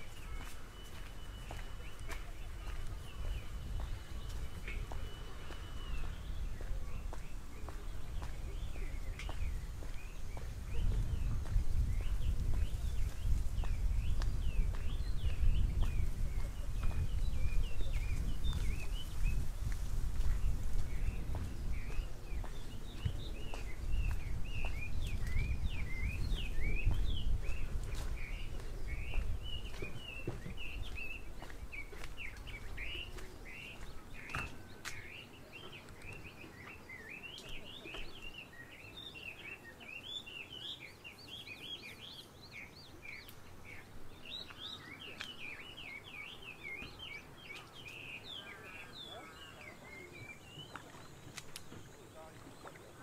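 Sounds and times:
small birds chirping: 0:00.0 - 0:53.0.

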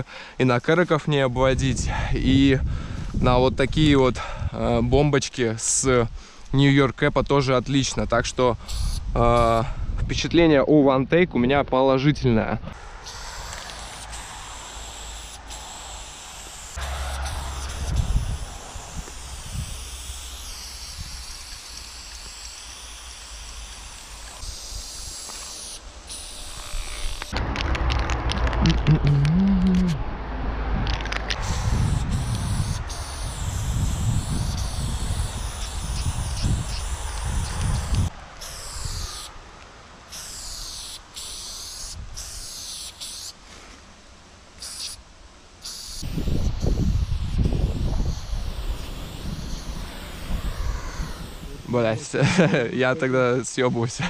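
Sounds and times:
spray paint can hissing: 0:08.6 - 0:09.0, 0:12.9 - 0:30.0, 0:30.9 - 0:39.3, 0:40.1 - 0:43.4, 0:44.6 - 0:45.0, 0:45.6 - 0:51.9.

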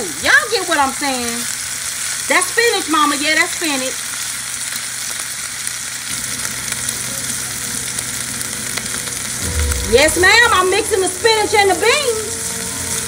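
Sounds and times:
bacon sizzling in a pan: 0:00.0 - 0:09.5.

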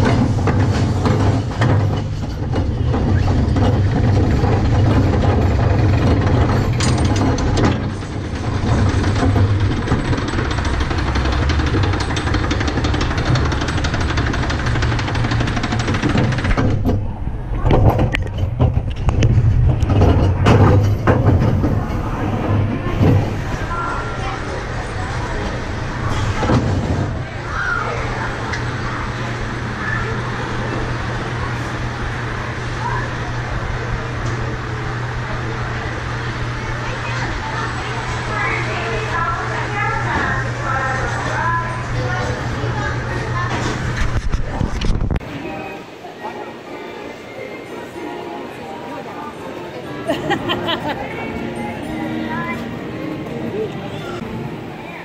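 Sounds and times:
clunks: 0:00.0 - 0:23.7
faint voices: 0:00.0 - 0:55.0
lift chain clicking: 0:00.1 - 0:16.6.

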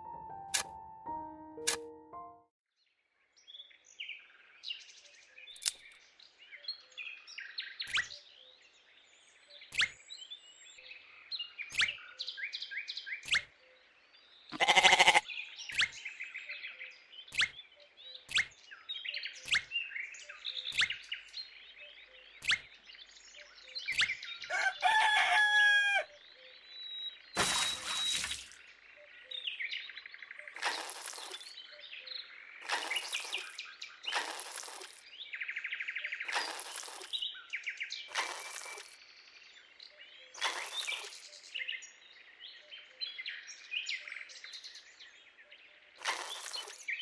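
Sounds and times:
small birds chirping: 0:03.4 - 0:25.0, 0:26.2 - 0:47.0
sharp clicks: 0:05.6 - 0:06.0
loud animal call: 0:14.6 - 0:15.2.

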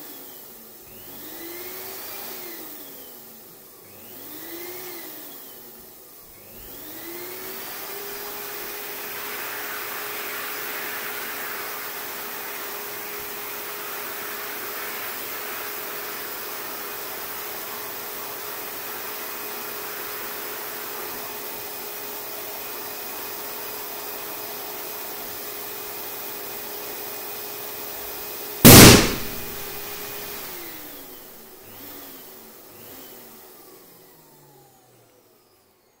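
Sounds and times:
balloon bursting with loud pop: 0:28.7 - 0:30.4.

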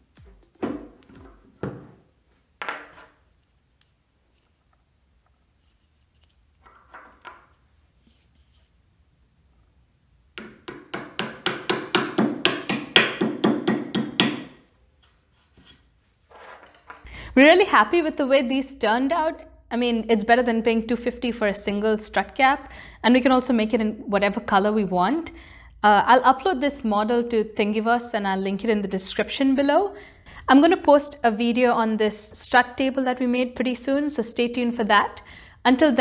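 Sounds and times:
hammer knocking on metal: 0:10.4 - 0:14.6.

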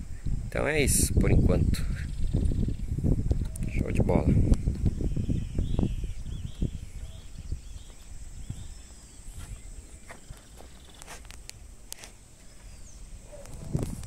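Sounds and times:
high arching chirps: 0:02.0 - 0:13.5.

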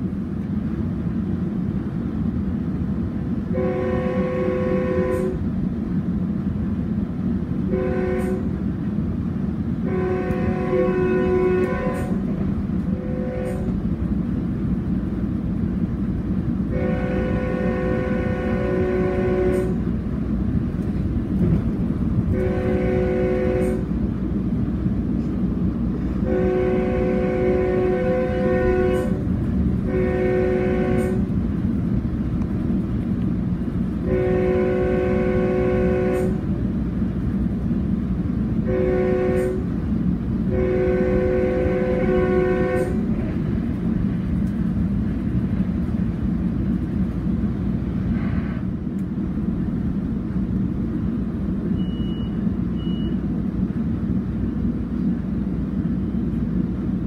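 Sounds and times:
train rumbling past: 0:00.0 - 0:57.0
locomotive air horn blasts: 0:03.5 - 0:05.5, 0:07.7 - 0:08.6, 0:09.8 - 0:13.9, 0:16.6 - 0:20.0, 0:22.2 - 0:24.0, 0:26.0 - 0:31.4, 0:34.0 - 0:36.6, 0:38.6 - 0:39.8, 0:40.4 - 0:43.4.

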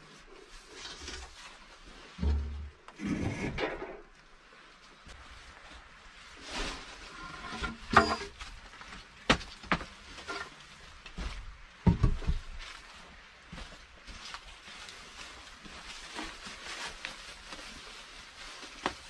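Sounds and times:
footsteps on dry leaves: 0:12.4 - 0:19.0.

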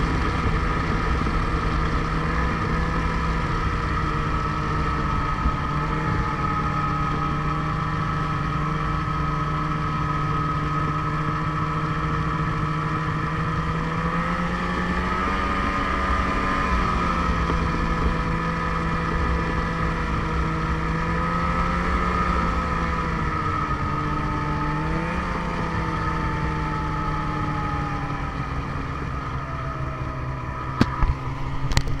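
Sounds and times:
snowmobile engine running: 0:00.0 - 0:32.0.

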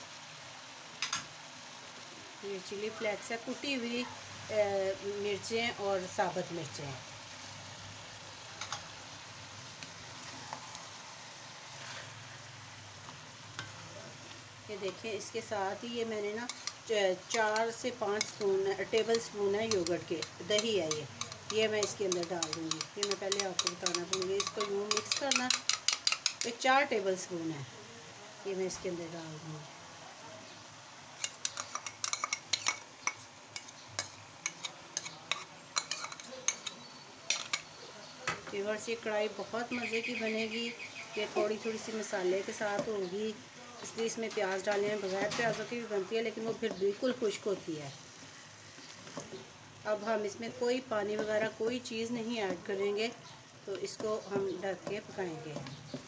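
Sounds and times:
food sizzling in a metal pan: 0:00.0 - 0:56.0
utensil clinking on metal bowl: 0:17.4 - 0:26.6, 0:31.2 - 0:37.7
wooden spoon clicking against pan: 0:17.4 - 0:26.6, 0:31.2 - 0:37.7.

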